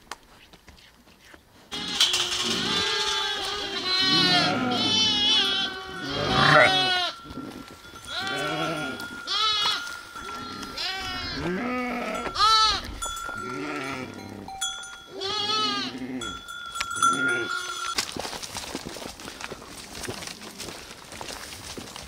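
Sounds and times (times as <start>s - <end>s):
sheep and lambs bleating: 1.7s - 18.0s
animal bells ringing: 1.7s - 20.2s.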